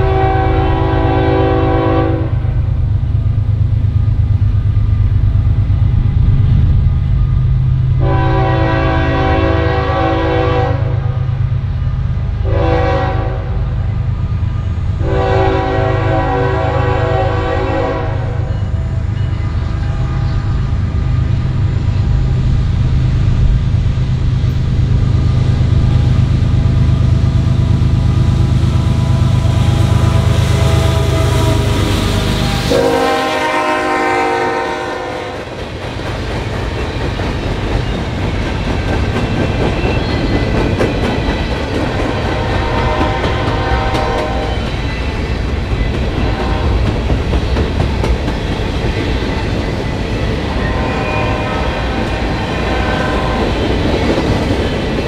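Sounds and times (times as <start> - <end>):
train horn: 0.0 - 2.6, 8.0 - 11.2, 12.4 - 13.9, 15.0 - 20.7, 28.7 - 35.6, 41.9 - 44.7, 46.1 - 47.0, 50.5 - 54.3
locomotive engine rumble: 0.0 - 55.0.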